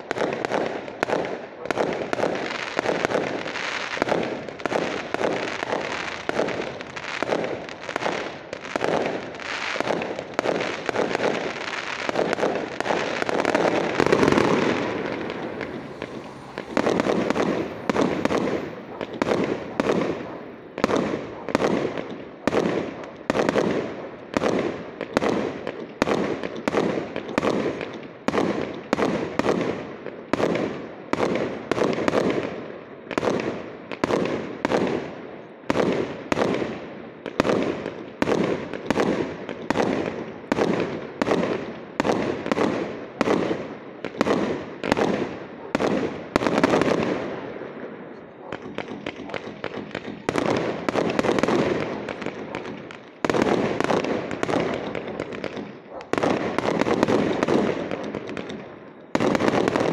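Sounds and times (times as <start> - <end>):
fireworks bursting: 0.0 - 59.9.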